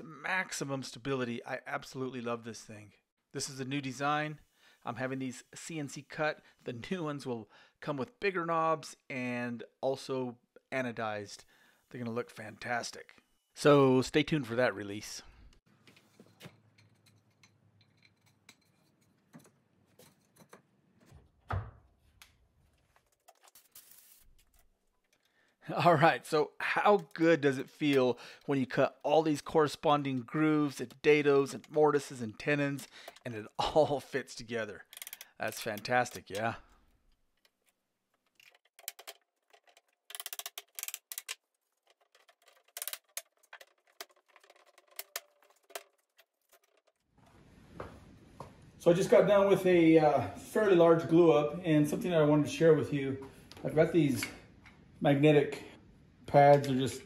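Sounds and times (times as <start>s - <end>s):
wooden thump: 21.4s - 21.9s
wooden parts clicking and knocking: 34.8s - 47.1s.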